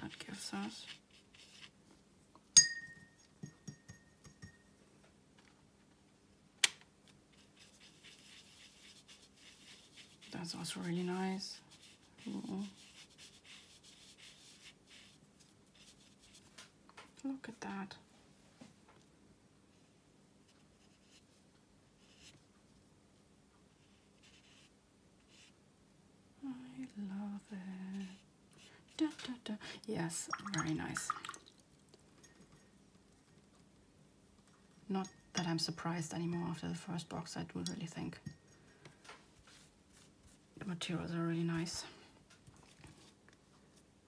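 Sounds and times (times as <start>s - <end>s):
brush swishing on paper: 0.0s - 1.8s, 7.3s - 16.7s, 23.7s - 25.6s, 39.4s - 40.4s
brush knocking on glass jar: 2.6s - 4.7s
ringing glass tone: 2.6s - 4.7s.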